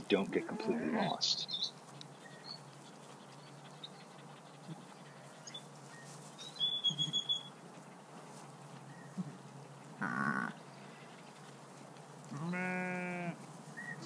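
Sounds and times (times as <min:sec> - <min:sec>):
small bird chirping: 0:01.2 - 0:07.6.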